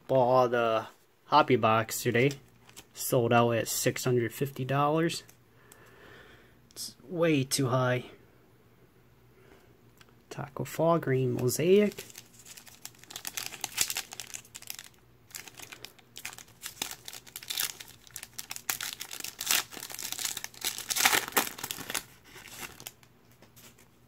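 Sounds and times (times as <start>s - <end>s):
foil wrapper crinkling and tearing: 11.4s - 23.8s.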